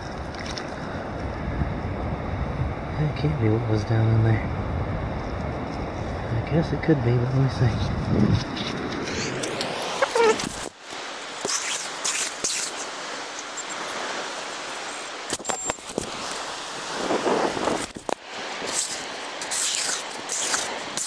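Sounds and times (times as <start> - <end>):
surf: 0.0 - 21.0
wind: 0.0 - 21.0
sand rattling in metal scoop: 18.6 - 21.0.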